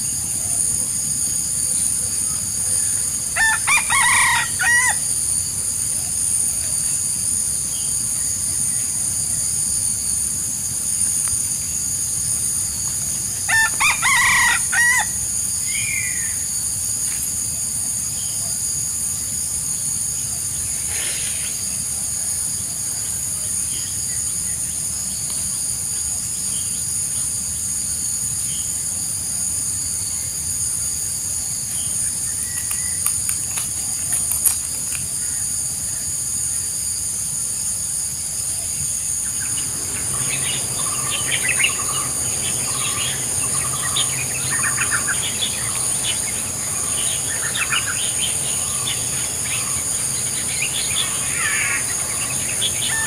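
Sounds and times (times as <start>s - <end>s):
rooster crowing: 3.3s - 5.2s, 13.4s - 15.3s, 39.4s - 53.0s
steady high-pitched drone: 38.7s - 53.0s.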